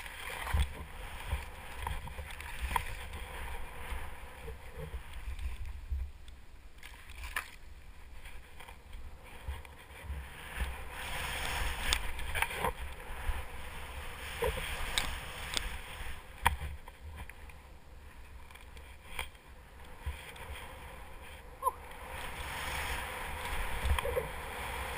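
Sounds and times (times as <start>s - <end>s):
wind rumbling on microphone: 0.0s - 24.9s
skis hissing through snow: 10.2s - 16.4s, 20.4s - 24.9s.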